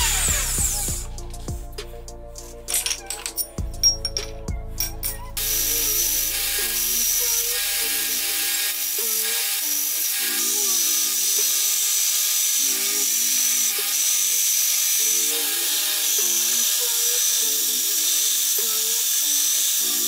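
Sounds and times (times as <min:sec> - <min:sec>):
belt grinder running: 0:00.0 - 0:01.0, 0:05.4 - 0:20.0.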